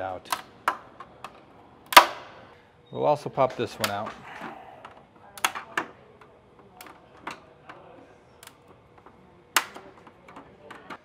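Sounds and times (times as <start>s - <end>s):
plastic knockouts snapping: 3.8s - 7.8s, 8.4s - 11.0s.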